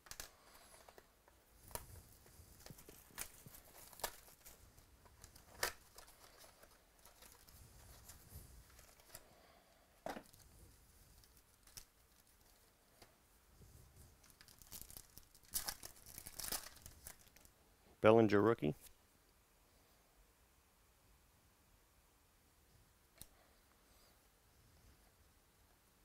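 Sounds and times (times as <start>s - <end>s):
plastic wrapper crinkling: 1.6s - 9.2s, 10.2s - 12.7s, 14.1s - 17.5s
foil pack ripping open: 2.6s - 4.6s, 14.2s - 17.5s.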